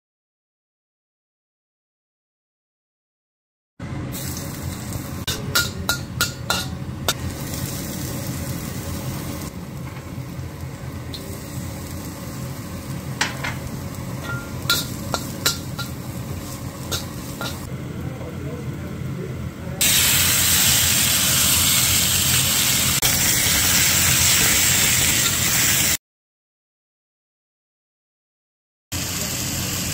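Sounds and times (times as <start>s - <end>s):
garlic sizzling in hot oil: 4.1s - 17.7s, 19.8s - 26.0s, 29.0s - 29.9s
chicken frying in oil: 4.2s - 17.7s, 19.8s - 26.0s, 28.9s - 29.9s.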